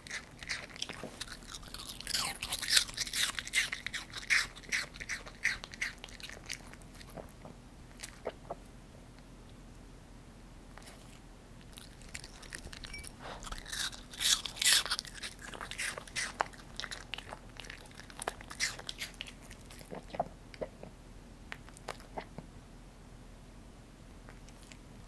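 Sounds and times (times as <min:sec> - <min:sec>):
dog crunching apple: 0:00.0 - 0:08.4, 0:10.8 - 0:20.8.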